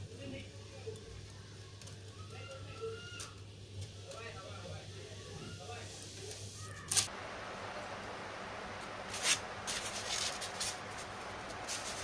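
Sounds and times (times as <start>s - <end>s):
steady hiss: 0.0s - 12.0s
foam rustling scrapes: 9.0s - 12.0s.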